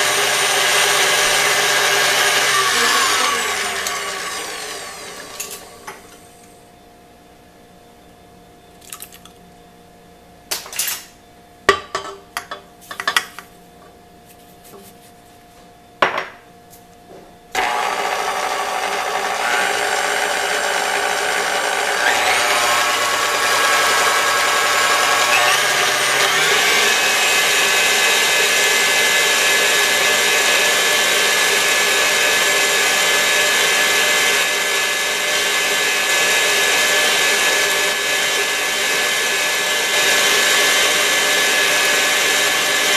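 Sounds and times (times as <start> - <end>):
stand mixer whirring: 0.0 - 6.5, 17.6 - 42.9.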